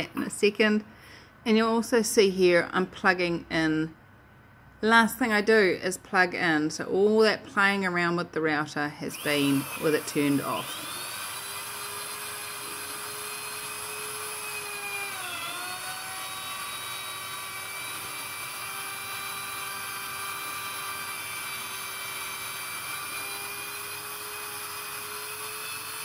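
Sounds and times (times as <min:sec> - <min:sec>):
electric router whining: 0:09.1 - 0:26.0.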